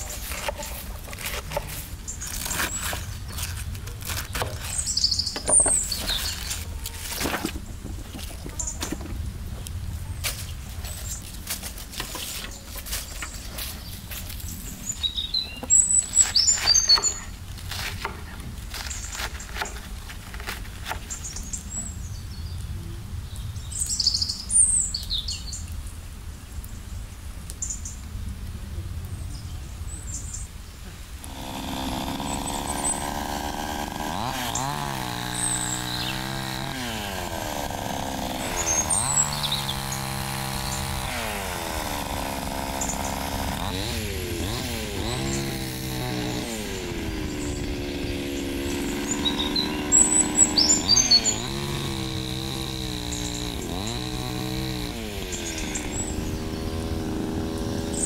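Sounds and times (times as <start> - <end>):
chainsaw engine revving: 0.0 - 9.2, 11.0 - 21.2, 31.2 - 58.0
small birds chirping: 0.0 - 25.9, 29.2 - 58.0.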